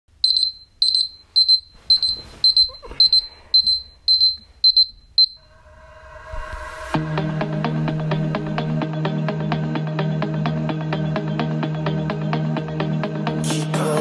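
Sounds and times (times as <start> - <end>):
smartphone alarm beeping: 0.2 - 5.5.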